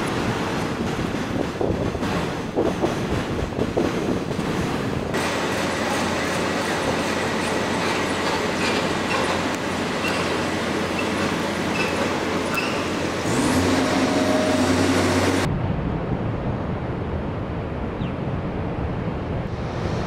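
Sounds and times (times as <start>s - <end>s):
city street traffic: 0.0s - 15.5s
heavy vehicle engine drone: 5.0s - 20.0s
dull low rumble: 14.9s - 19.9s.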